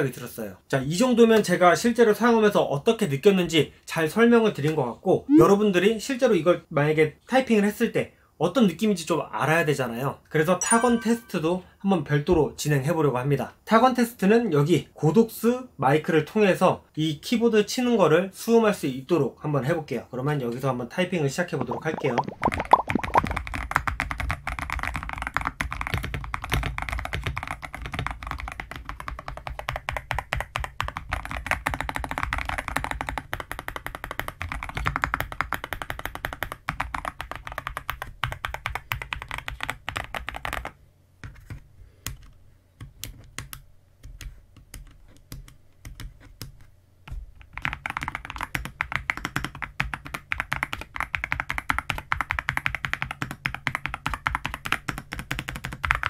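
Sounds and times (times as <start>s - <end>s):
mechanical keyboard typing: 23.0s - 42.3s, 47.4s - 56.0s.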